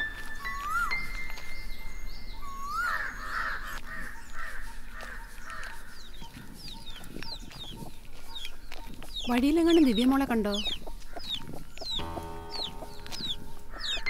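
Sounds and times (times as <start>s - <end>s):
small bird chirping: 0.0s - 14.0s
crows cawing: 2.6s - 6.6s, 12.0s - 14.0s.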